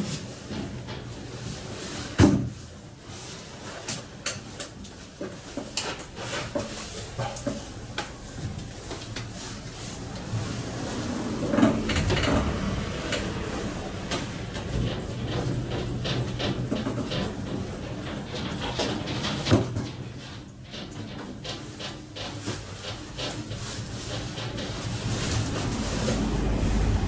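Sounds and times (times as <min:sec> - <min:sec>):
handling noise: 0:00.0 - 0:27.0.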